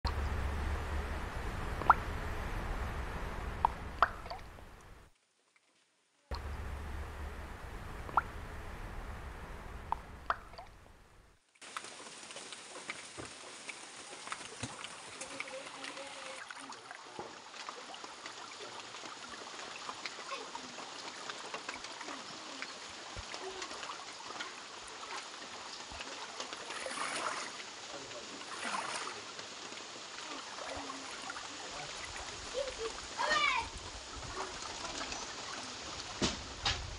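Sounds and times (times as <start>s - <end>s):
rain falling on leaves and water: 0.0s - 36.9s
single raindrop taps: 0.1s - 5.1s, 6.3s - 11.9s.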